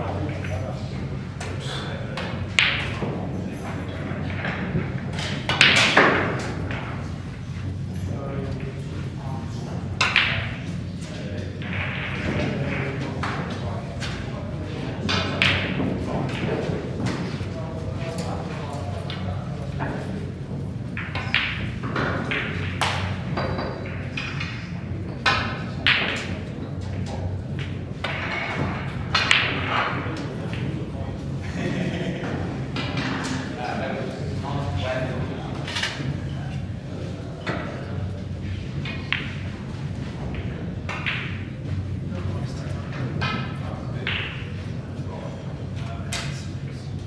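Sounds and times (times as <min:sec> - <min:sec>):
cue tip hitting ball: 0:02.2 - 0:03.2, 0:03.9 - 0:07.1, 0:10.0 - 0:10.6, 0:15.0 - 0:17.1, 0:21.0 - 0:24.6, 0:25.2 - 0:26.4, 0:27.1 - 0:31.0, 0:40.2 - 0:41.5
snooker balls knocking: 0:02.2 - 0:07.6, 0:09.8 - 0:17.4, 0:18.9 - 0:31.0, 0:38.4 - 0:41.9, 0:42.8 - 0:44.6.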